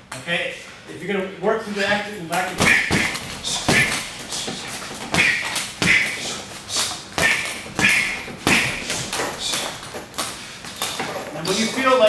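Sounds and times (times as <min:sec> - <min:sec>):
punches thudding on heavy bag: 0:02.6 - 0:06.2, 0:07.1 - 0:10.0.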